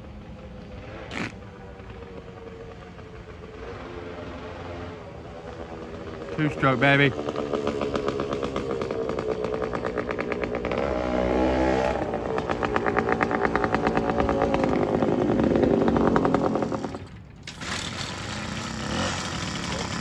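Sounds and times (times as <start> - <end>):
two-stroke moped engine revving: 0.7 - 1.5, 3.5 - 20.0.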